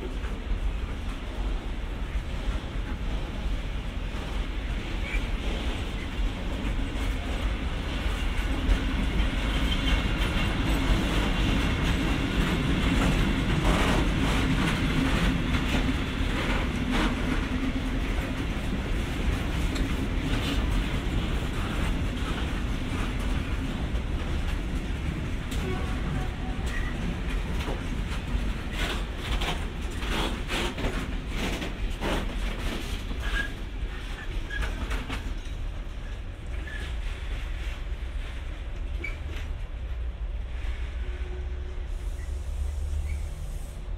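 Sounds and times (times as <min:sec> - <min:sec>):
train wheels rumbling on rail: 0:00.0 - 0:43.9
wheels clacking over rail joints: 0:05.0 - 0:37.0.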